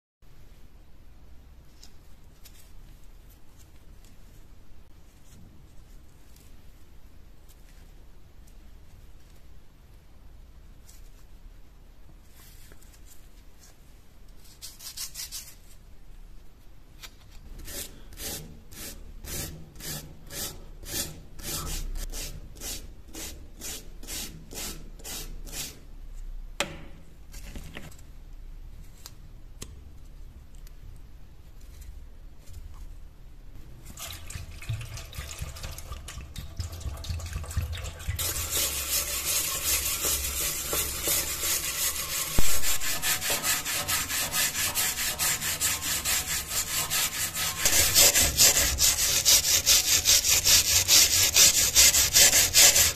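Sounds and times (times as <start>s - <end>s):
plastic scraper on metal: 38.2s - 52.9s
rust scraped off knife blade: 38.3s - 52.9s.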